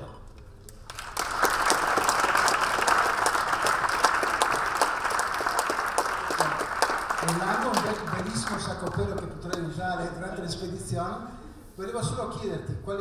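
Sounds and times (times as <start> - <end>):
audience applauding: 0.8 - 9.7.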